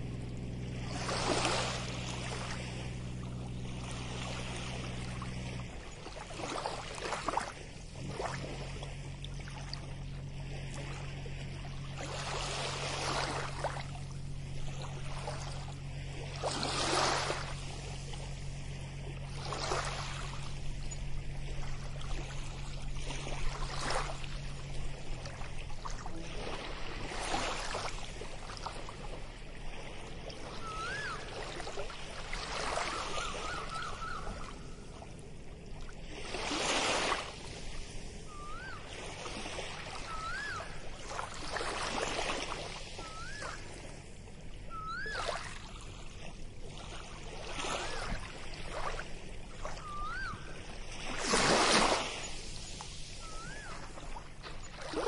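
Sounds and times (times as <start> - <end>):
small waves washing onto beach: 0.0 - 55.0
bird call rising and falling: 30.3 - 31.6, 32.7 - 35.0, 38.3 - 38.9, 40.0 - 40.9, 43.0 - 43.7, 44.7 - 45.6, 49.7 - 50.6, 53.2 - 54.2.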